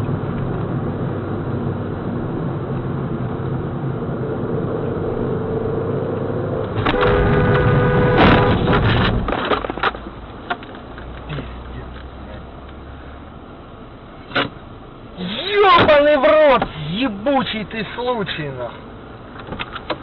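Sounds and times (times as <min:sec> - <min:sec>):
vehicle engine and road noise: 0:00.0 - 0:20.0
car crash impact: 0:06.7 - 0:10.0
loud held tone: 0:06.8 - 0:08.8.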